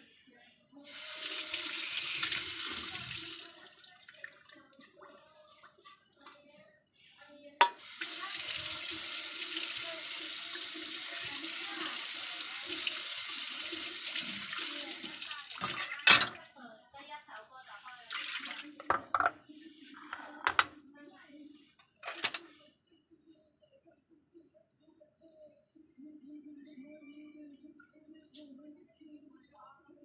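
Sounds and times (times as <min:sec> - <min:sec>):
tap water running into steel sink: 0:00.9 - 0:05.0, 0:07.6 - 0:16.4.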